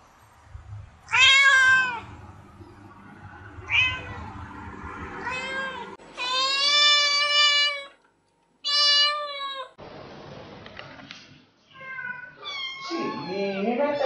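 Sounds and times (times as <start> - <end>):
cat long steady meow: 1.1 - 2.1, 5.2 - 8.0
cat meowing: 1.1 - 2.1, 5.2 - 8.0, 8.6 - 9.8, 11.7 - 14.0.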